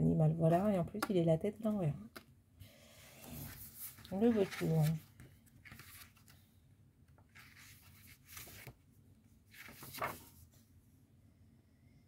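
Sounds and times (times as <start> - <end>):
paper pages turning: 3.3 - 6.4, 7.2 - 8.8, 9.5 - 10.6.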